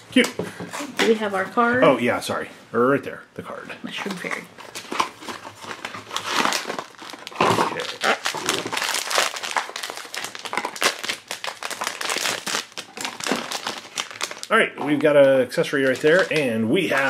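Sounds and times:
foil pouch crinkling: 4.6 - 14.5, 15.7 - 17.0.

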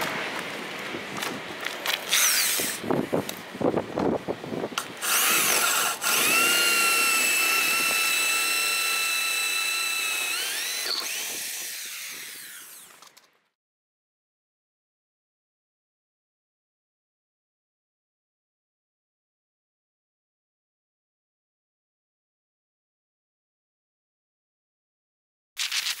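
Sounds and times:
electric drill whining: 2.1 - 2.8, 5.0 - 13.1.

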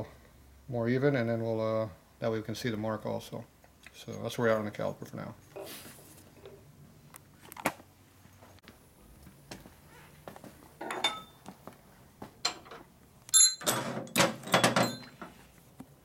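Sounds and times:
metal parts clinking: 12.5 - 15.2.

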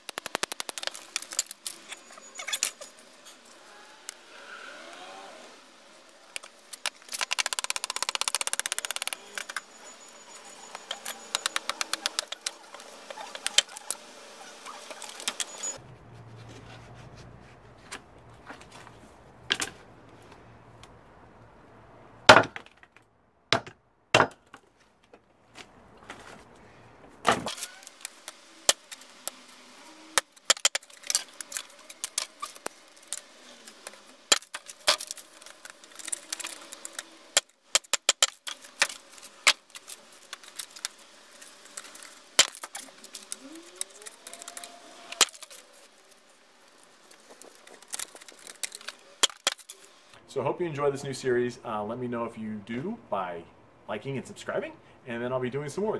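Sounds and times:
dry strips clattering: 0.0 - 3.7, 6.1 - 15.8, 27.4 - 50.0.

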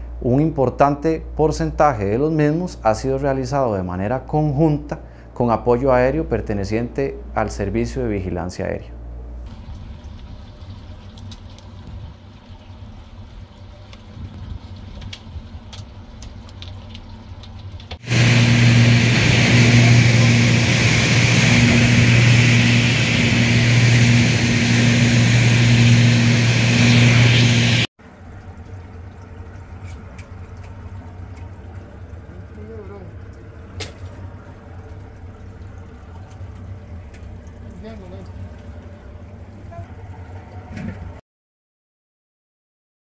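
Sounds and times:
low engine rumble: 8.9 - 41.2
aircraft engine drone in cabin: 17.5 - 27.9.

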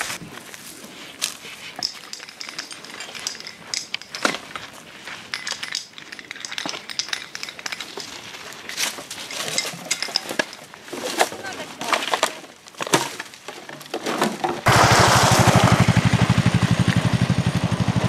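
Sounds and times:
footsteps on gravel: 0.0 - 13.6.

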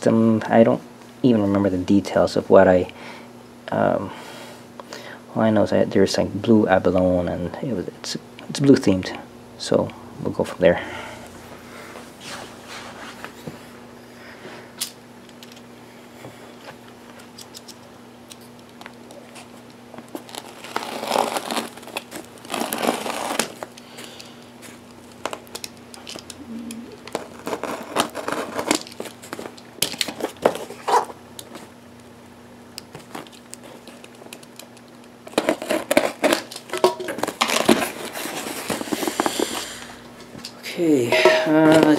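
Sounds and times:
faint low hum: 0.0 - 29.6
cardboard and tape crinkling tearing: 18.4 - 26.3, 26.9 - 31.7, 32.9 - 39.8.

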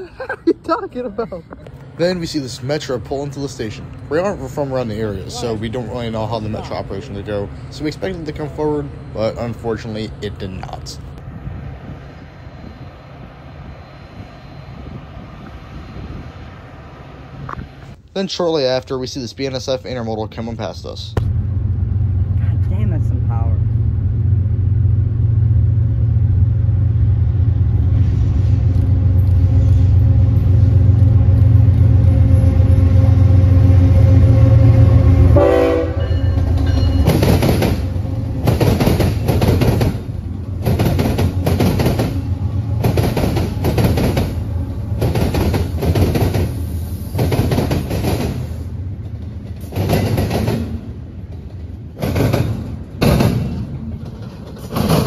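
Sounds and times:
diesel locomotive engines droning: 0.0 - 55.0
train wheels clacking over rail joints: 36.2 - 55.0.

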